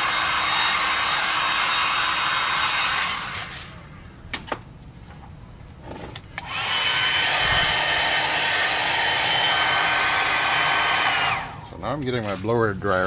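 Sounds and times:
blow dryer running: 0.0s - 3.6s, 6.4s - 11.7s.

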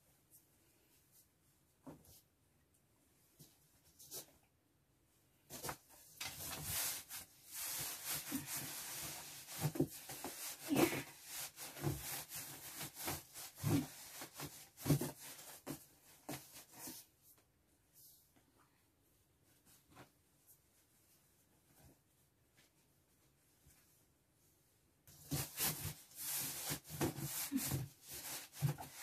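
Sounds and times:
clothes rustling against cardboard: 5.4s - 17.2s, 25.1s - 29.0s.

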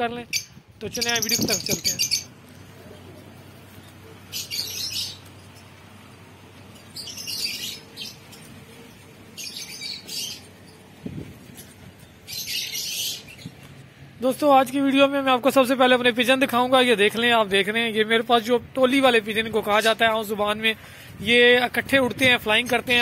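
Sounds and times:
faint steady background noise: 0.0s - 23.0s
small bird chirping: 0.3s - 2.3s, 2.9s - 13.8s.

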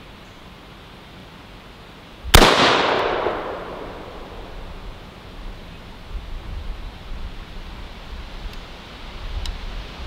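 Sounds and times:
rifle shot with echo: 2.3s - 4.9s.

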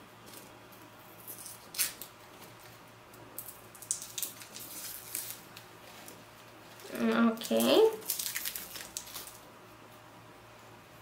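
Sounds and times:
packaging clicks and rustles: 3.8s - 9.4s.

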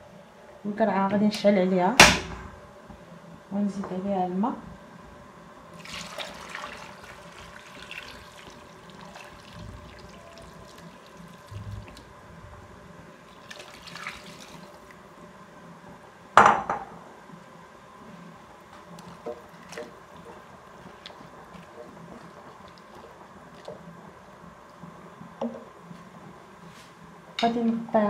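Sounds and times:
loud knock: 2.0s - 2.6s
water pouring and splashing: 5.7s - 12.2s, 13.2s - 15.0s, 18.8s - 23.8s.

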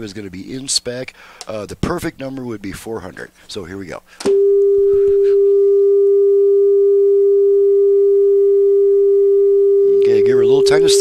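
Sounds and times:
steady pure test tone: 4.3s - 11.0s.

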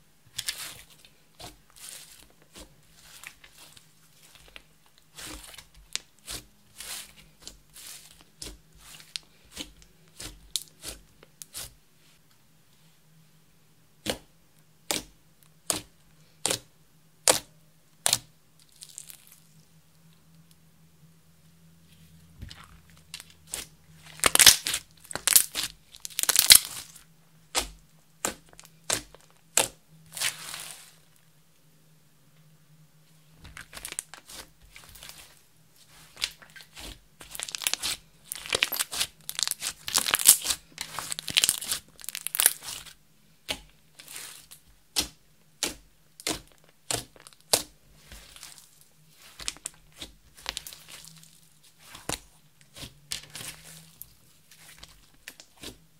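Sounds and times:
slime crackling and popping: 22.5s - 30.9s, 35.9s - 55.8s.

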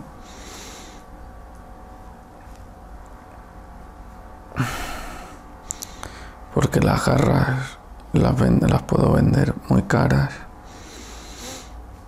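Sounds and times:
faint low hum: 0.0s - 12.0s
man breathing: 0.1s - 1.1s, 4.6s - 6.5s, 10.6s - 11.8s
lip clicks: 5.7s - 6.1s.

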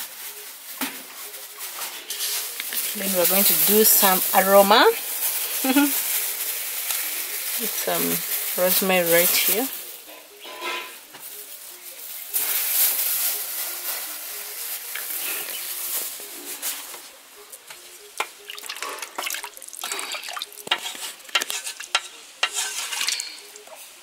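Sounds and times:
pot hissing: 1.4s - 17.5s, 18.2s - 23.9s
spoon knocking and scraping pot: 20.7s - 23.3s.

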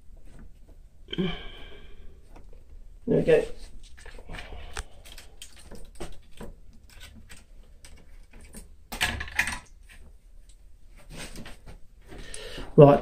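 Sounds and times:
tools and wire clicking: 3.8s - 10.6s
rustling scrape: 10.9s - 12.2s.

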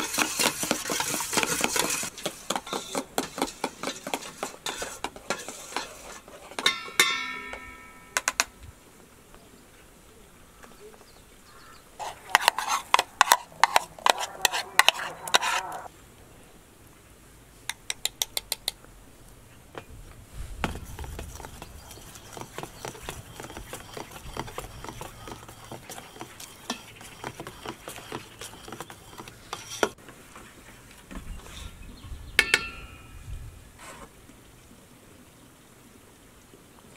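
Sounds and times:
batter mixing: 0.0s - 6.7s, 12.0s - 15.9s, 20.6s - 30.0s
spoon clinking in metal bowl: 6.6s - 8.3s.

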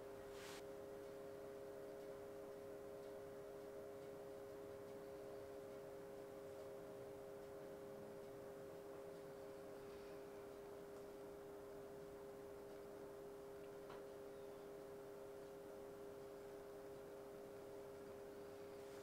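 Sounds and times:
faint hum of held tones: 0.0s - 19.0s
short hiss: 0.3s - 0.6s.

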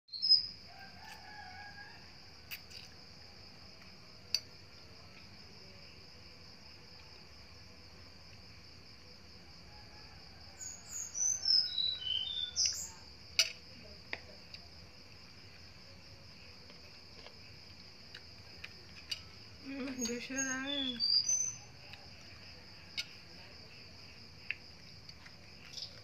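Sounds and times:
high insect drone: 0.1s - 26.0s
songbird whistling: 10.9s - 13.0s, 20.0s - 21.7s.

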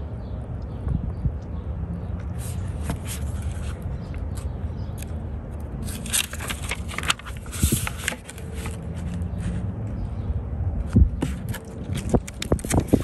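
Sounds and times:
paper pages rustling: 2.3s - 4.4s, 5.8s - 9.6s, 11.2s - 13.0s.

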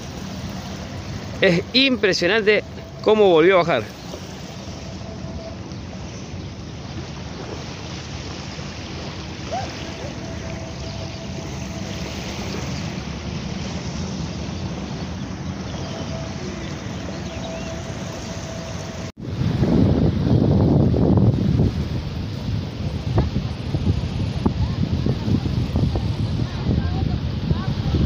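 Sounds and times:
faint hum: 0.0s - 19.1s
wind buffeting microphone: 0.0s - 28.0s.

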